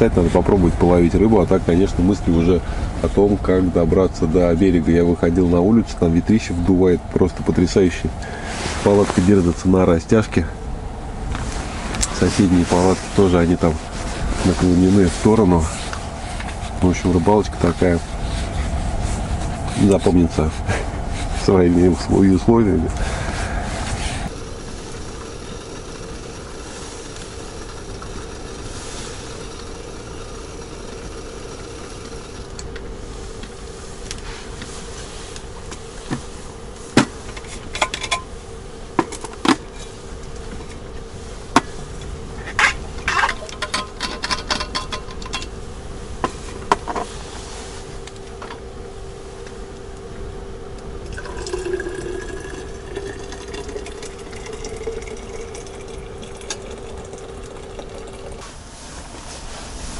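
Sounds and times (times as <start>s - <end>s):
steady low hum: 0.0s - 59.9s
metal clinks and knocks: 42.6s - 45.5s
water pouring into thermos: 51.0s - 58.4s.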